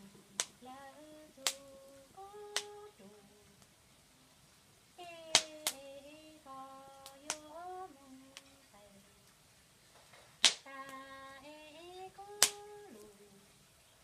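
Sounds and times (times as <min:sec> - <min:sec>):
woman singing unaccompanied: 0:00.0 - 0:03.6, 0:05.0 - 0:09.2, 0:10.6 - 0:13.6
sharp slaps: 0:05.4 - 0:05.8, 0:10.4 - 0:10.7, 0:12.4 - 0:12.6.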